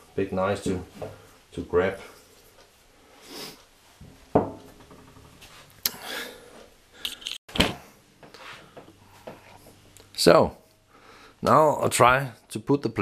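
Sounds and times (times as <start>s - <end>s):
tools knocking on workbench: 4.0s - 5.4s.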